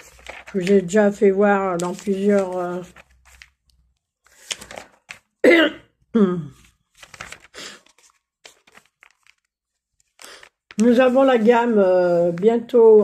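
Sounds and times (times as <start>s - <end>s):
woman coughing: 5.4s - 6.4s.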